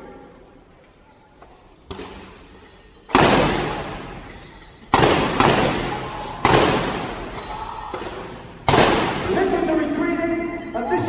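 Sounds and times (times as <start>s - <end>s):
gun bangs with long echo: 3.1s - 4.2s, 4.9s - 7.3s, 8.6s - 9.6s.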